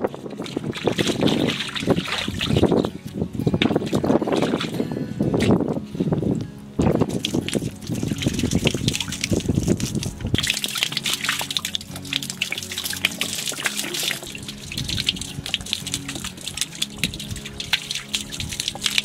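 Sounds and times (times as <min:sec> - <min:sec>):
water pouring into muddy pit: 0:00.0 - 0:02.9, 0:07.0 - 0:19.0
background music: 0:00.0 - 0:19.0
water dripping and trickling: 0:00.0 - 0:19.0.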